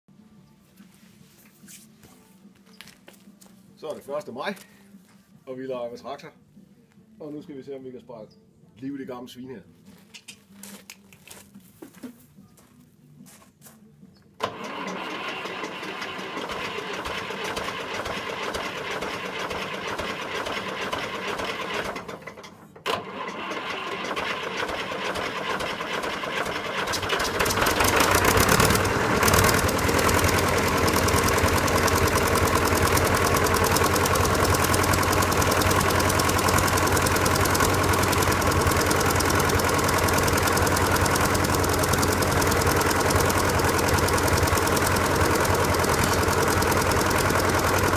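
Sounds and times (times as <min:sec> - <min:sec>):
diesel engine idling: 0:14.4 - 0:47.9
engine starter cranking: 0:14.4 - 0:47.9.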